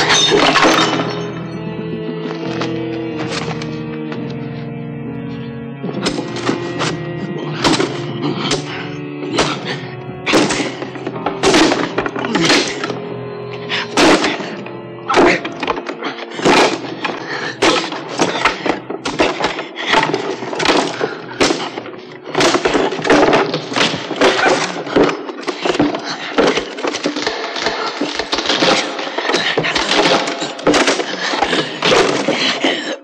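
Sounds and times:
music with held tones: 0.0 - 32.9
crashes and thuds: 6.0 - 13.0, 13.8 - 32.8.

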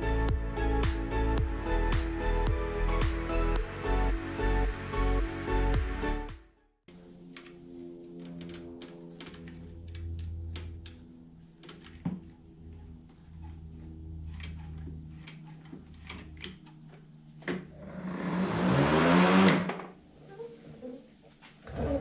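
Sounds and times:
electric mower motor whirring: 7.0 - 19.9.

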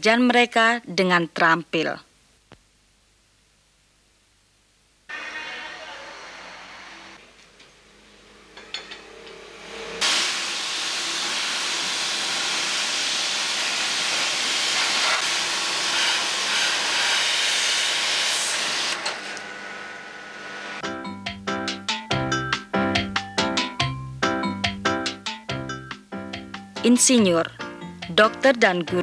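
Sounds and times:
spray hose hissing water: 10.0 - 18.9.

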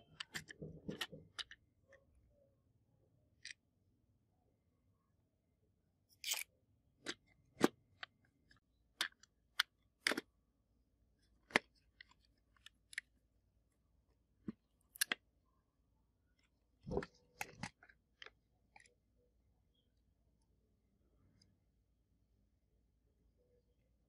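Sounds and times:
clicks and taps handling model car: 0.0 - 1.6, 7.0 - 10.3.

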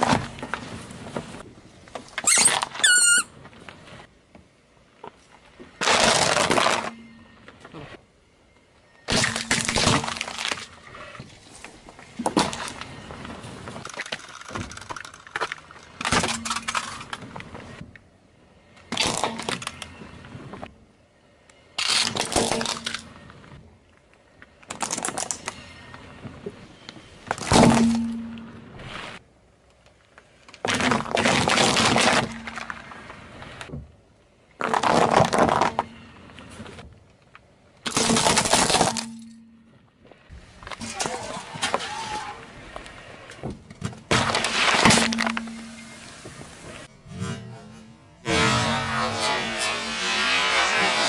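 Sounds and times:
plastic cracking under a tyre: 5.0 - 7.0, 9.1 - 17.9, 18.9 - 20.6, 21.8 - 23.3, 24.0 - 25.6, 27.3 - 28.0, 29.8 - 33.8, 34.6 - 39.2, 42.7 - 45.5
tyre crushing hard cubes: 5.8 - 7.0, 34.6 - 35.9, 37.9 - 39.2.

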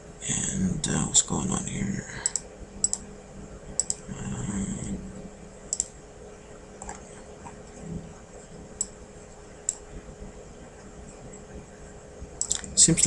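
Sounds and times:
computer mouse clicks: 2.2 - 3.0, 3.8 - 4.0, 5.7 - 5.9, 9.6 - 9.8, 12.4 - 12.7.

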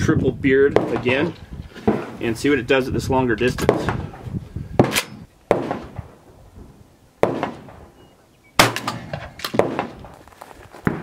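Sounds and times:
shotgun blasts: 0.7 - 2.3, 3.6 - 4.2, 4.8 - 6.2, 7.2 - 8.0, 8.6 - 10.2.

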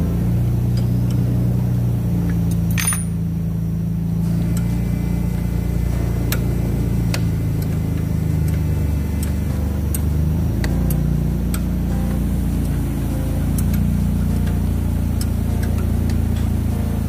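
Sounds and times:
steady low hum: 0.0 - 17.0
hand tools clinking on bolts: 2.5 - 3.3.

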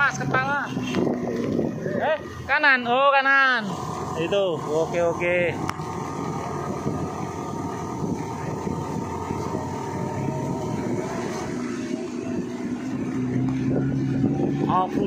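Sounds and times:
off-road vehicle engine running: 0.0 - 15.0.

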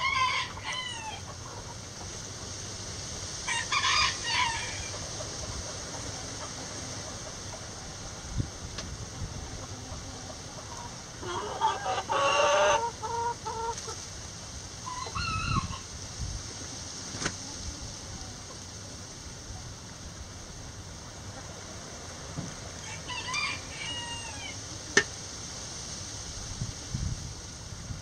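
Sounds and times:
rooster crowing: 0.0 - 1.3, 3.4 - 5.0, 11.2 - 13.7, 22.8 - 24.6
chickens clucking: 0.0 - 19.7, 20.4 - 25.2.

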